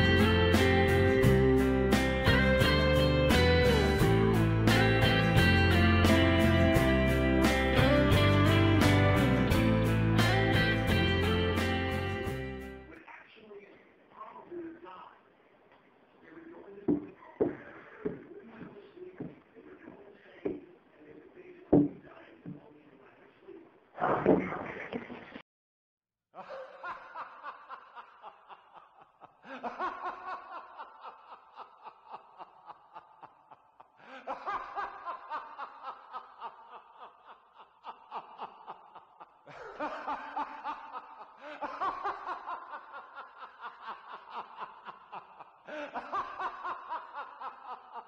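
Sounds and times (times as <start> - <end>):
pulsing laughter: 26.4 - 48.0.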